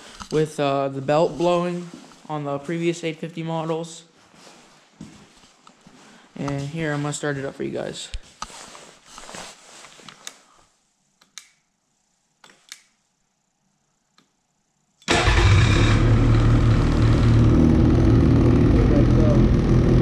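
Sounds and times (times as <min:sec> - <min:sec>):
snowmobile engine running: 0:15.2 - 0:20.0.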